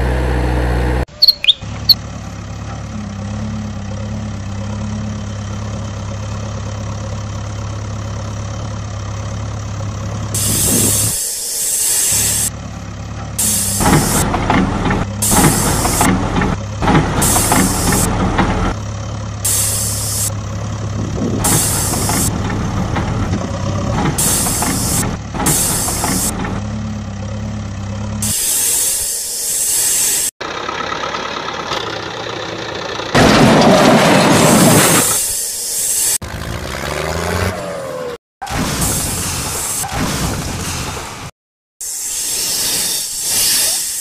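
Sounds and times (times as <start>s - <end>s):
diesel engine running: 0.0s - 39.7s
short hissing bursts: 10.4s - 12.5s, 13.4s - 14.2s, 19.5s - 20.3s, 21.4s - 22.3s, 24.2s - 26.3s, 28.2s - 30.3s, 35.0s - 36.2s, 41.8s - 44.0s.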